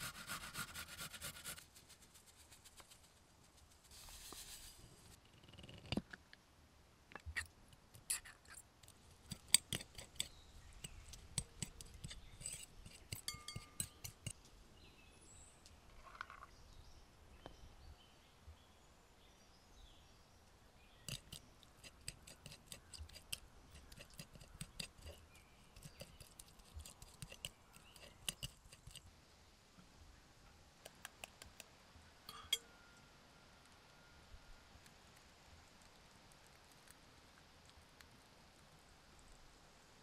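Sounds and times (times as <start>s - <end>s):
fork clicking and scraping bowl: 7.3s - 14.4s, 21.0s - 29.0s, 32.3s - 32.7s.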